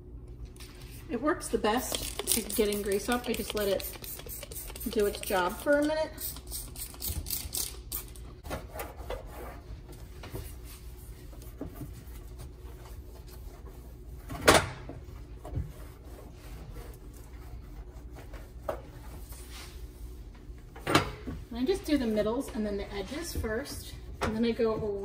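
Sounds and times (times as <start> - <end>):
cloth scrubbing a stovetop: 0.7 - 7.0, 8.9 - 20.7, 21.4 - 25.0
spray bottle trigger pumping: 1.9 - 5.6.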